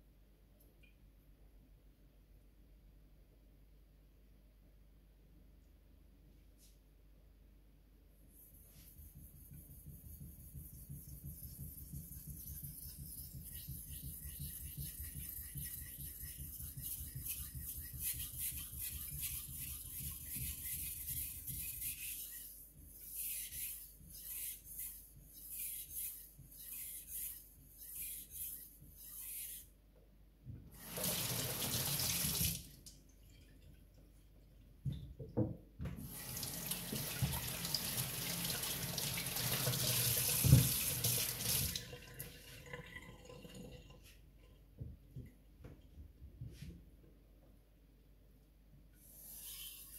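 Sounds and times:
knife stroked on whetstone: 8.4 - 29.7, 49.0 - 49.9
tap water running: 30.8 - 32.7, 36.0 - 44.1.

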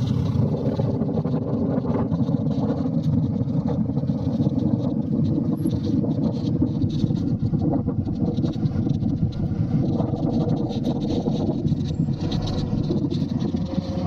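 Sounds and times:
motorcycle engine running: 0.0 - 14.0
road rumble on cobblestones: 0.0 - 14.0
wind noise: 0.0 - 14.0.

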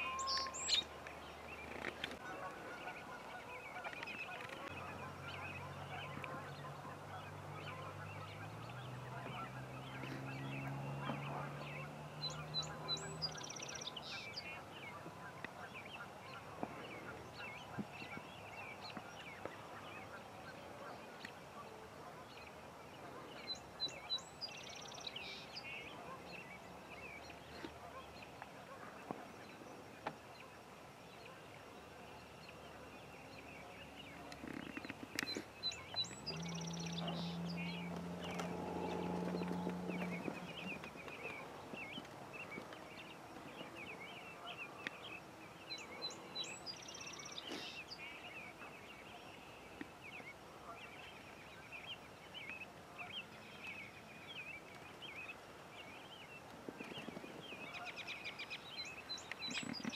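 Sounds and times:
high bird song: 0.0 - 59.9
geese honking: 2.2 - 14.3.

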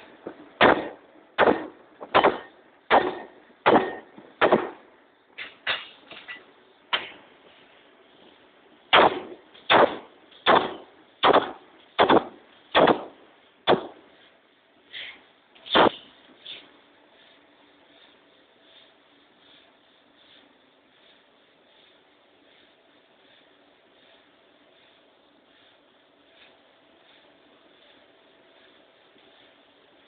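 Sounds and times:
power hammer striking hot metal: 0.2 - 4.8, 8.9 - 14.0.

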